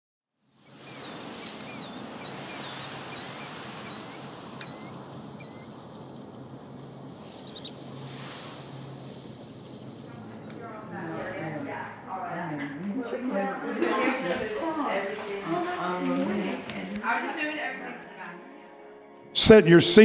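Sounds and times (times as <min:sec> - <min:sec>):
steady outdoor hiss: 0:00.4 - 0:17.6
bird whistled call: 0:00.6 - 0:05.8, 0:07.4 - 0:07.8
bird chirp: 0:00.6 - 0:06.4, 0:07.2 - 0:07.9.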